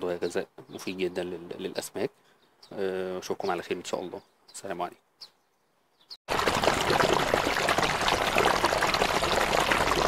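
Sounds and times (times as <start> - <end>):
running water rushing: 6.3 - 10.0.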